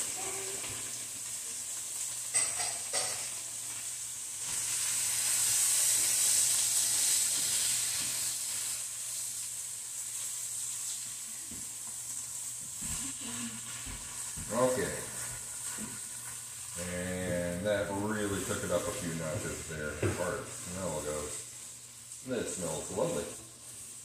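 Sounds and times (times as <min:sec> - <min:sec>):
vegetables sizzling in a frying pan: 0:00.0 - 0:24.0.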